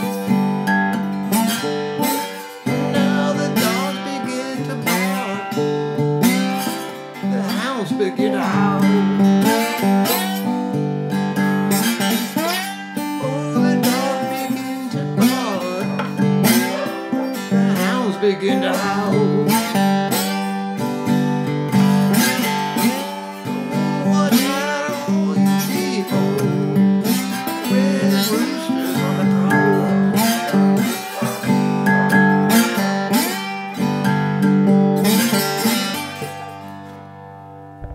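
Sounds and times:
acoustic blues guitar: 0.0 - 37.9.

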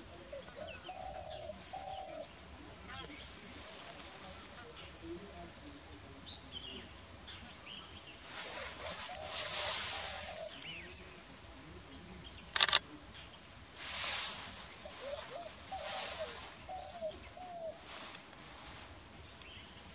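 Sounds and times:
faint bird calls: 0.0 - 2.4, 7.4 - 11.1, 12.4 - 18.5
high insect-like buzz: 7.2 - 19.9.

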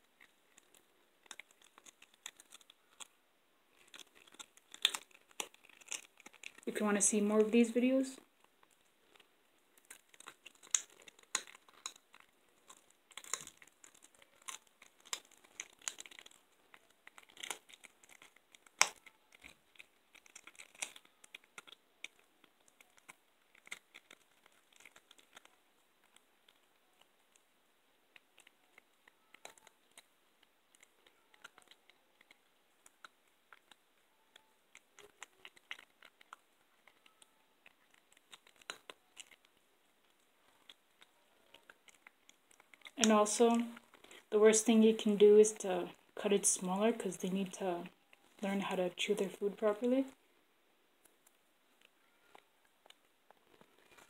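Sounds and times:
cat crunching bone: 0.0 - 6.7, 8.3 - 43.0.

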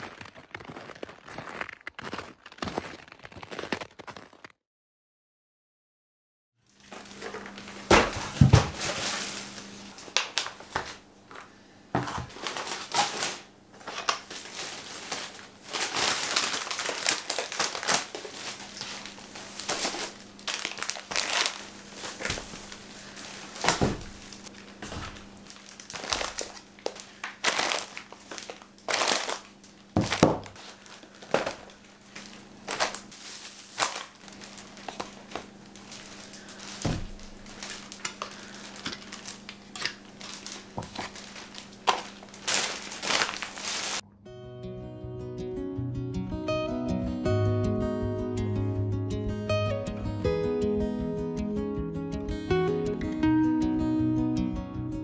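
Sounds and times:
plastic bags rustling: 6.7 - 11.4, 12.0 - 44.0
packages thudding on a table: 7.2 - 9.5, 23.5 - 29.4, 30.0 - 39.3, 40.2 - 44.0.

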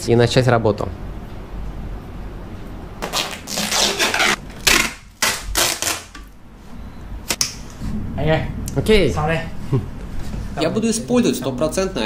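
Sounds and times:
plastic wrap crackling: 3.0 - 6.2.

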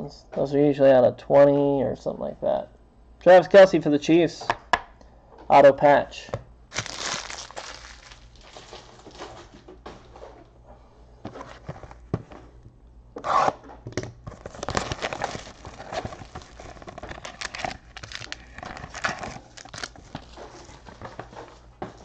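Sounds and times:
plastic wrap tearing and crinkling: 6.7 - 9.5, 14.3 - 21.1.

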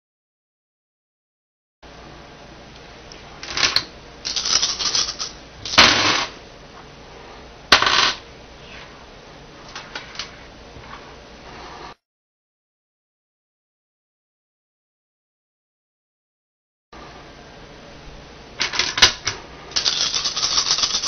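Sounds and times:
dice clattering on wood: 3.5 - 5.3, 19.8 - 21.0
dice rattling: 4.3 - 5.4, 19.8 - 21.0.

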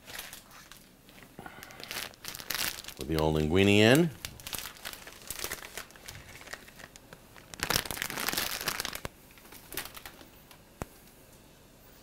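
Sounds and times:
plastic packaging crinkling: 0.0 - 10.6.

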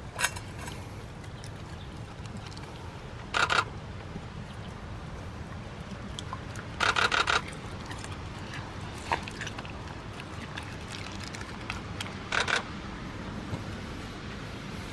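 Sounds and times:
low background rumble: 0.0 - 14.9
dog chewing meat: 1.2 - 3.3, 4.5 - 12.4.

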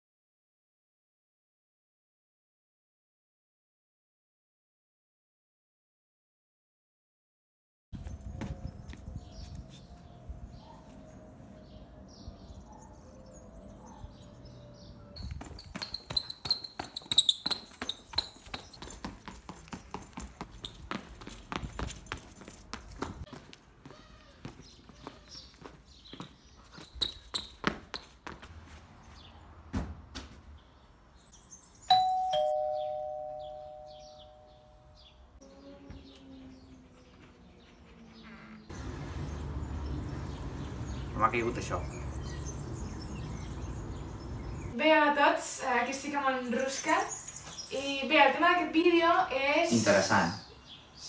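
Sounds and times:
hard footsteps on paving tiles: 8.0 - 10.2, 15.2 - 30.5
birds chirping: 8.0 - 28.4, 30.5 - 51.0
ding-dong doorbell chime: 31.9 - 34.9.

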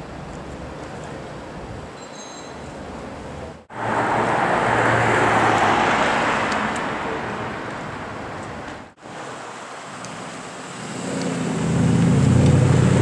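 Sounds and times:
car driving past: 3.7 - 8.4, 10.7 - 13.0.

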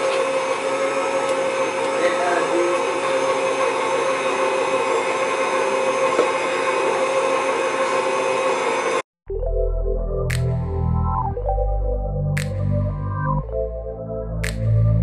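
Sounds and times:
stand mixer motor whine: 0.0 - 9.0
background music: 9.3 - 15.0.

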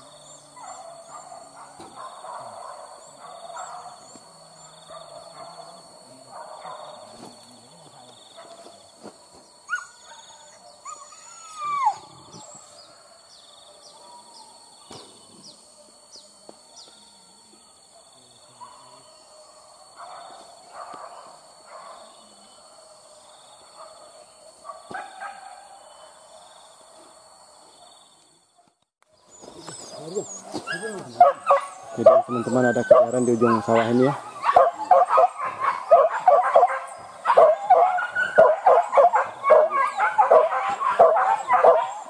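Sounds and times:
dogs whining and yelping: 9.7 - 12.7, 29.8 - 42.0.

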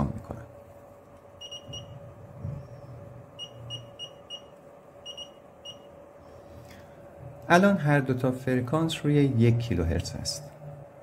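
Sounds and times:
short high-pitched beeps: 1.4 - 2.0, 3.4 - 5.9.

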